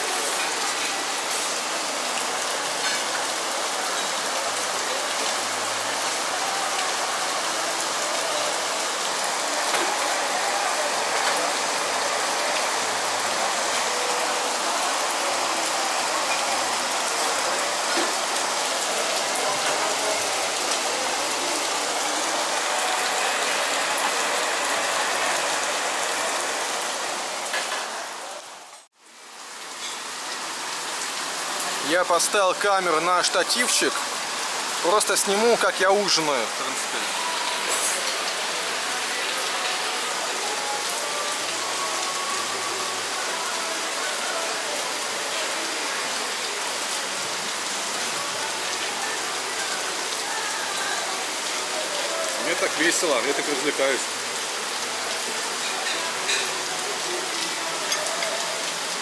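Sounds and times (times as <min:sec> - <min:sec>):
heavy rain pouring: 0:00.0 - 0:59.0.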